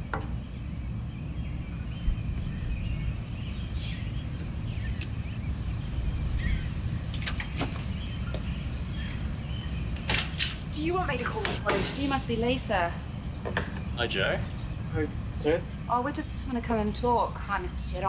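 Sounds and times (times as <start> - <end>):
faint bird chirps: 0.0 - 7.1
steady low rumble: 0.0 - 10.1.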